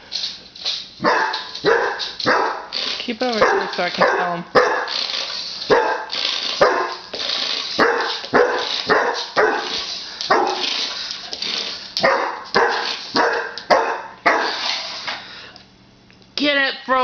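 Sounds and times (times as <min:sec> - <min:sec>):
dog barking: 0:01.0 - 0:02.7, 0:03.4 - 0:05.0, 0:05.7 - 0:07.0, 0:07.8 - 0:10.6, 0:12.0 - 0:14.6.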